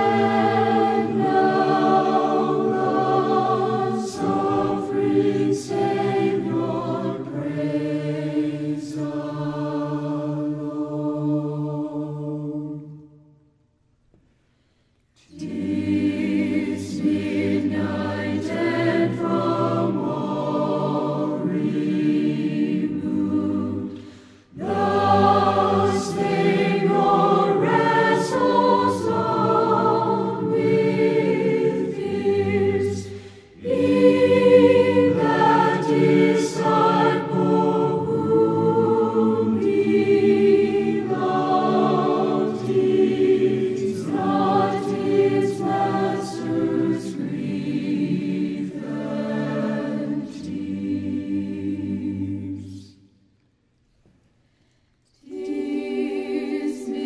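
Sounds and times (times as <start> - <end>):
choir singing a slow hymn: 0.0 - 13.5, 14.1 - 53.4, 54.0 - 57.0
breaths: 14.2 - 15.2, 23.9 - 24.6, 33.1 - 33.6, 54.2 - 55.1.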